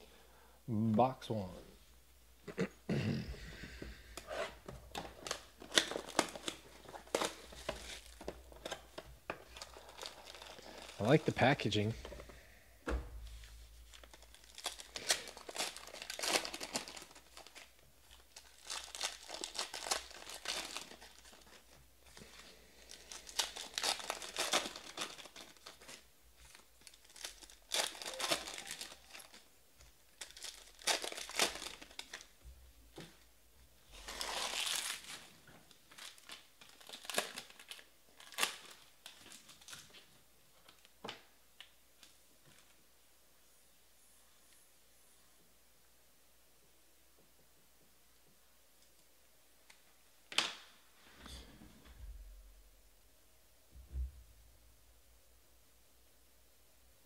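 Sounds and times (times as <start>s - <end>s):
wrappers crinkling and tearing: 4.2s - 11.9s, 13.6s - 32.4s, 33.8s - 40.9s.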